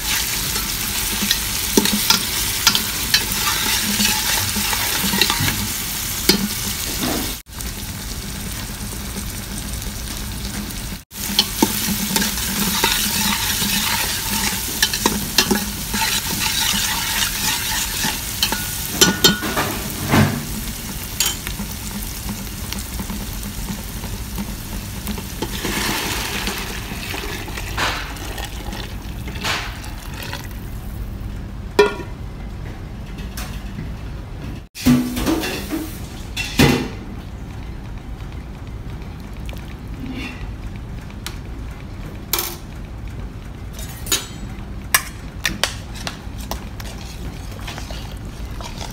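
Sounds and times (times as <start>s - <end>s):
vegetables sizzling in oil: 0.0s - 31.2s
spoon scraping and clicking on pot: 45.0s - 48.9s.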